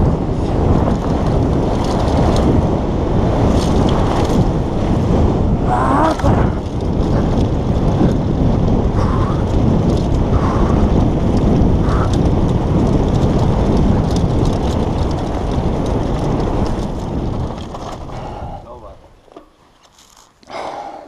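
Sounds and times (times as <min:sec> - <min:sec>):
wind buffeting microphone: 0:00.0 - 0:19.7
bike ticks and rattles on stones: 0:00.0 - 0:20.6.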